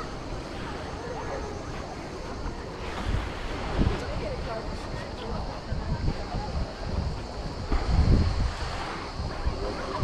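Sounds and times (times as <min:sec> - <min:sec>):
faint distant voices: 0:00.0 - 0:10.0
surf washing: 0:00.0 - 0:10.0
wind: 0:00.0 - 0:10.0.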